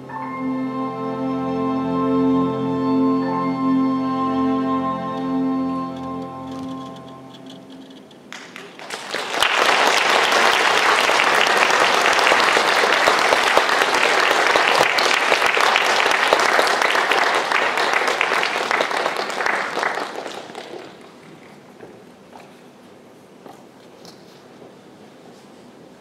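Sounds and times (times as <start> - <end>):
audience applauding: 8.3 - 21.7.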